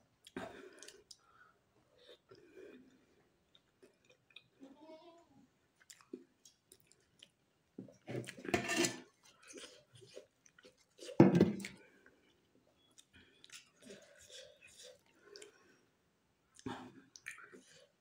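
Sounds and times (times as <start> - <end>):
person chewing food: 0.2 - 4.6, 5.8 - 15.9, 16.5 - 18.0
wet mouth clicks: 16.6 - 17.7.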